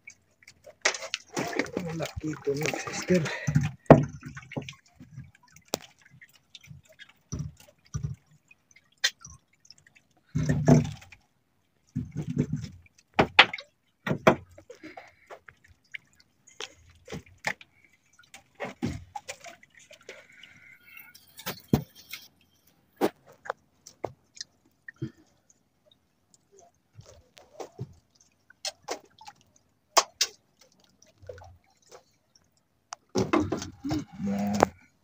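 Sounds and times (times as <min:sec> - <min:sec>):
water drips and splashes: 0:00.0 - 0:35.0.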